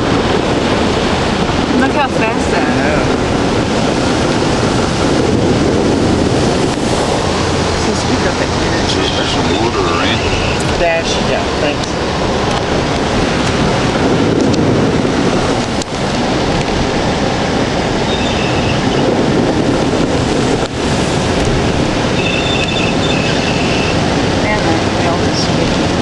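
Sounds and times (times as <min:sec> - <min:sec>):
heavy rain and road spray: 0:00.0 - 0:26.0.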